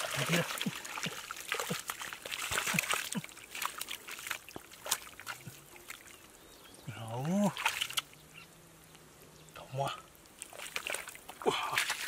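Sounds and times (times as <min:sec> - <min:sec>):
hands squelching in wet mud: 0:00.0 - 0:06.2, 0:07.2 - 0:08.1, 0:10.4 - 0:12.0.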